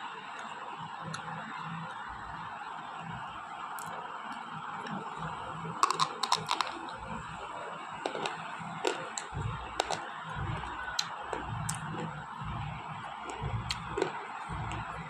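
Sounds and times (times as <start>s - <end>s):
teeth crunching slate pencils: 5.8s - 6.9s, 8.1s - 10.1s.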